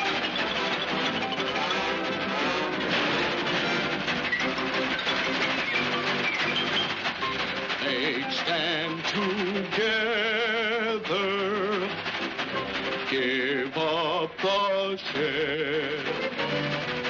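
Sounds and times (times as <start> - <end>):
cartoon music with vibrato: 0.0 - 17.0.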